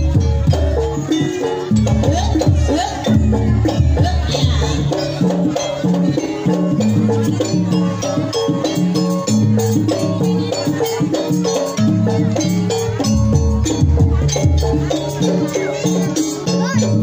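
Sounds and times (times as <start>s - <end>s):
drumming: 0.0s - 17.0s
gamelan struck notes: 0.0s - 17.0s.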